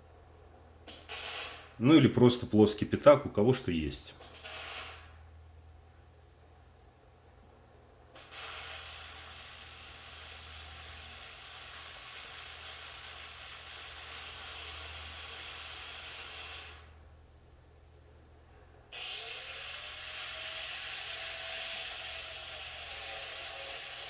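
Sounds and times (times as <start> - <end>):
welding arc: 0.9 - 1.8, 4.2 - 5.2, 8.2 - 16.9, 18.9 - 24.0.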